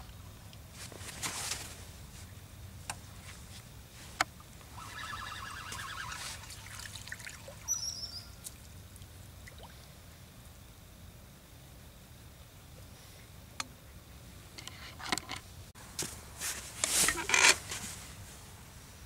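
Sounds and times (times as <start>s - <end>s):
fish splashing in water: 6.0s - 7.8s
birds chirping: 7.5s - 8.6s.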